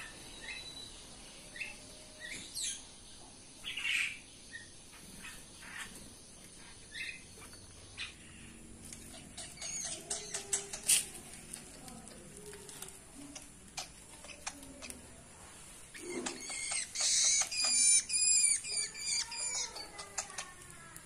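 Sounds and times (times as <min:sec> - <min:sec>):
bird begging calls: 0:15.9 - 0:20.4.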